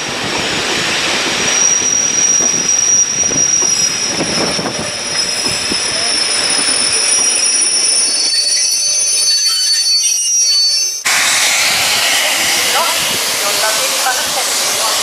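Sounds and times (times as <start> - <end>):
train wheels squealing: 1.4 - 12.9.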